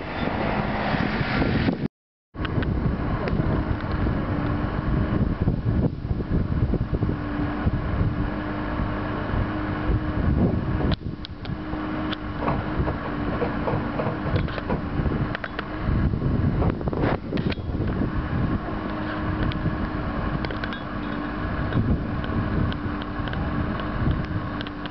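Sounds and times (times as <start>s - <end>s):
diesel engine running: 2.4s - 24.9s
sharp knocks: 12.4s - 14.9s.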